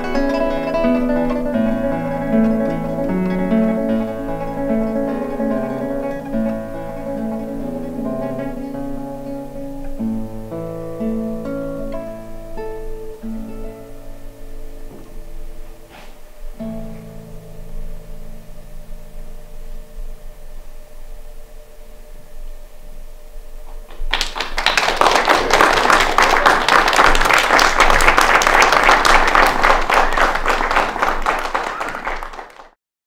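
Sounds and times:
audience applauding: 0:00.0 - 0:08.5, 0:23.9 - 0:32.8
classical guitar chord ringing: 0:00.0 - 0:21.8.

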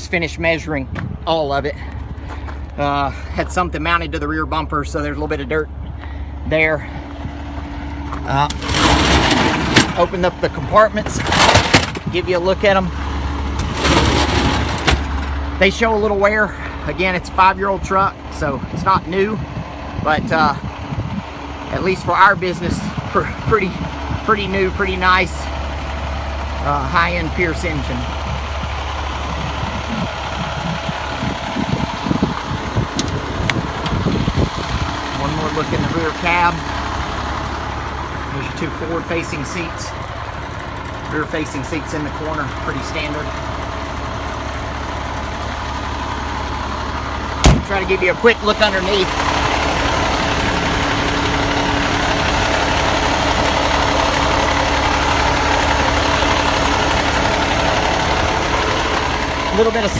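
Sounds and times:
diesel engine idling: 0:00.0 - 0:59.9
steady rumble: 0:00.0 - 0:59.9
low thumps: 0:47.4 - 0:48.0.

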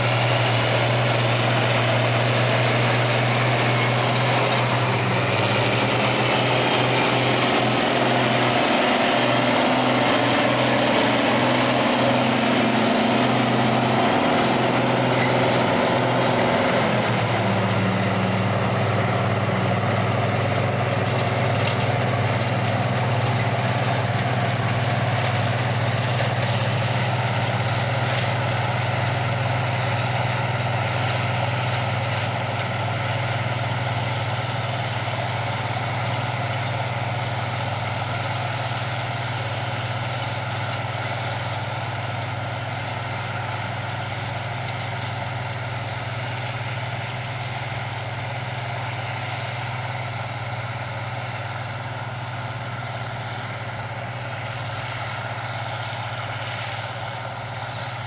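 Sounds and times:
tractor diesel engines droning: 0:00.0 - 0:58.0.

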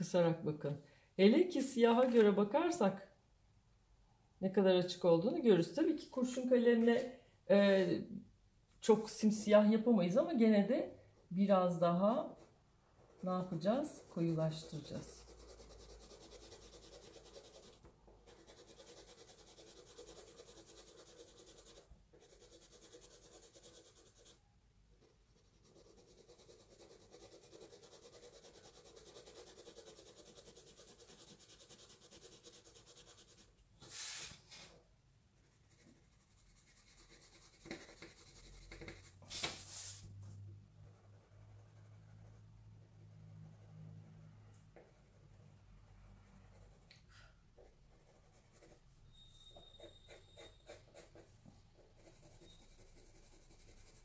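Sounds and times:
pencil scratching on paper: 0:12.2 - 0:24.4, 0:25.0 - 0:34.7, 0:35.4 - 0:40.0, 0:40.8 - 0:42.6, 0:44.8 - 0:46.9, 0:47.6 - 0:54.0
pencil scrapes: 0:25.0 - 0:34.8, 0:46.5 - 0:54.0.

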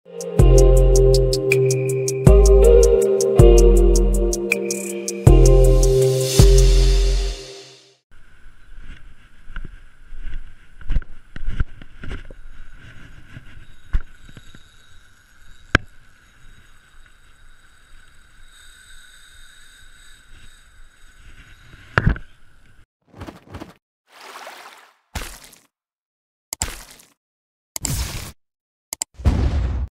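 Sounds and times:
fishing rod and reel handling noise: 0:11.4 - 0:22.3.

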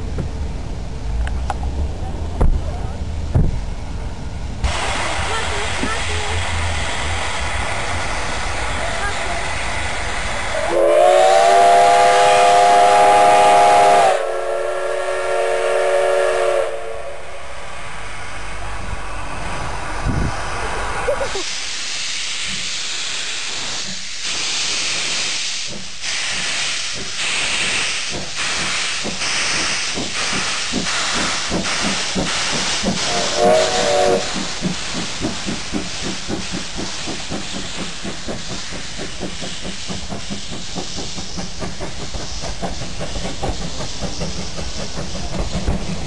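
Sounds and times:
low rumble of train: 0:00.0 - 0:46.0
steam locomotive chuffing: 0:00.0 - 0:46.0
steam whistle blast: 0:10.5 - 0:17.3, 0:33.0 - 0:34.4.

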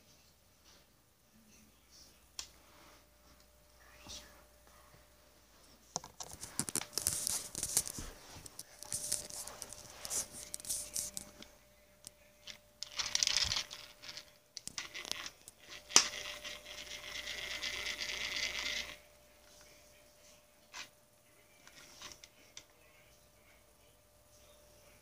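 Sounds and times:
rustling and scraping on carpet: 0:04.7 - 0:11.4.

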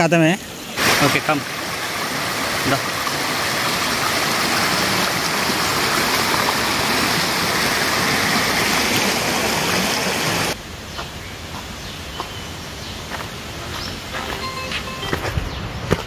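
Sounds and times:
water rushing over rocks: 0:00.5 - 0:10.6.

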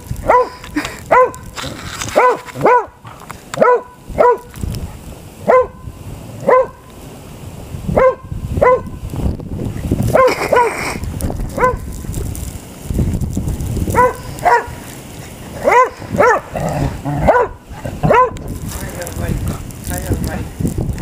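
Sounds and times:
dog barking: 0:00.2 - 0:01.5, 0:02.2 - 0:03.0, 0:03.6 - 0:04.5, 0:05.4 - 0:06.8, 0:07.9 - 0:09.0, 0:10.1 - 0:10.8, 0:11.5 - 0:11.9, 0:13.9 - 0:14.8, 0:15.6 - 0:16.6, 0:17.2 - 0:18.4.

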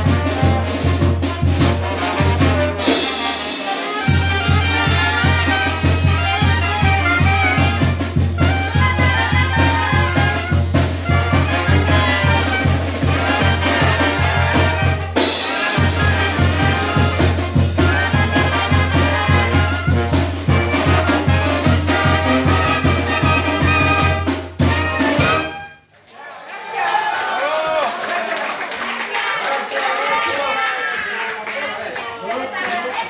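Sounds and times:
drum kit beat: 0:00.0 - 0:25.7
trumpets and trombones: 0:00.0 - 0:25.9.

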